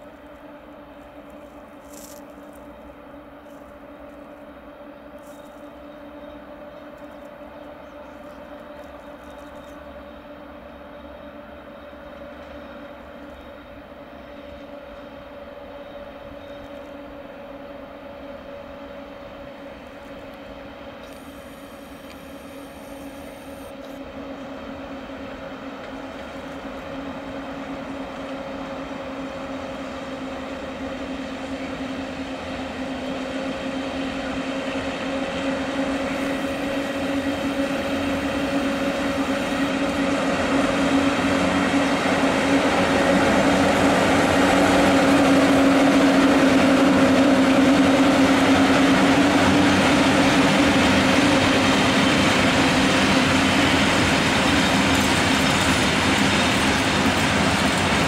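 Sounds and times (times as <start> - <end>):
electric locomotive hum: 0.0 - 58.0
train wheels rolling on rails: 0.0 - 58.0.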